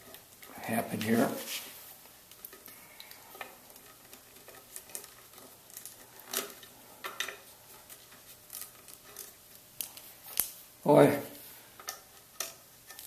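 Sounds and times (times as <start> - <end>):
plastic and wire clicking on metal: 2.3 - 10.6, 11.8 - 13.0.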